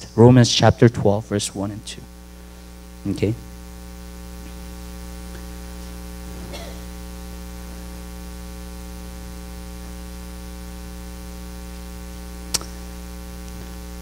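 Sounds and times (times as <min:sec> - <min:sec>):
electrical mains hum: 0:00.0 - 0:14.0
sharp click: 0:12.5 - 0:12.8.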